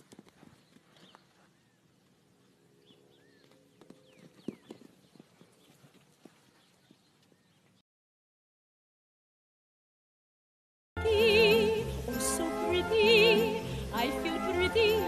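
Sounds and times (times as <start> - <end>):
hooves knocking on dirt: 0.0 - 2.2, 3.2 - 7.8.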